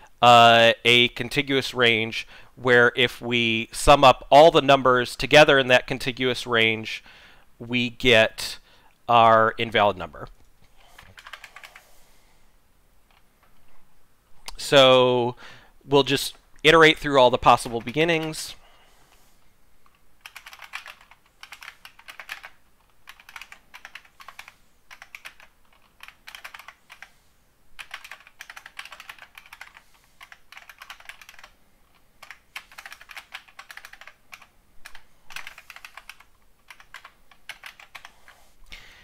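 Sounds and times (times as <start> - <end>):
computer keyboard typing: 11.0 - 11.8, 19.9 - 27.2, 27.8 - 38.4.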